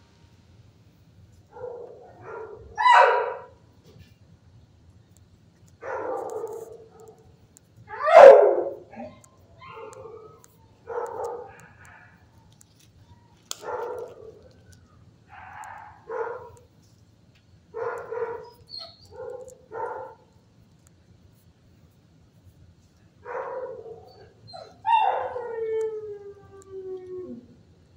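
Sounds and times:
dogs barking: 1.5 - 3.6, 5.8 - 7.3, 7.9 - 12.5, 13.5 - 14.6, 15.3 - 16.6, 17.8 - 20.3, 23.2 - 25.5.

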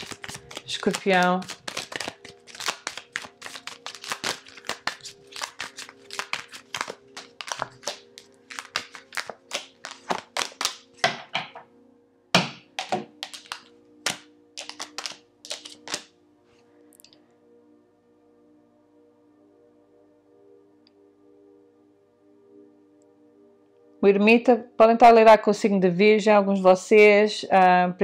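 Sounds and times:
cards snapping and slapping: 0.0 - 11.3, 12.4 - 16.1.

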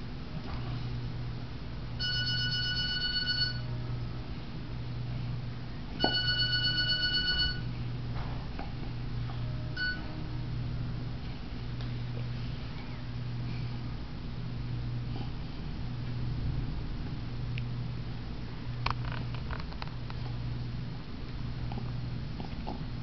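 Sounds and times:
steady low hum: 0.0 - 23.0
electronic ringing tone: 2.0 - 3.8, 6.0 - 7.7, 9.5 - 10.3.

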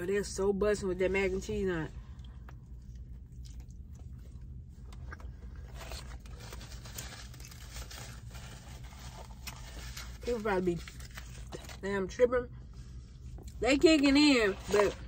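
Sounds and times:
low steady hum: 0.0 - 15.0
person chewing food: 2.1 - 6.4.

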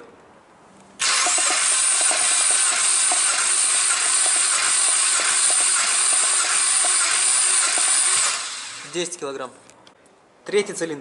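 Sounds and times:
engine cranking whir: 1.0 - 9.0.

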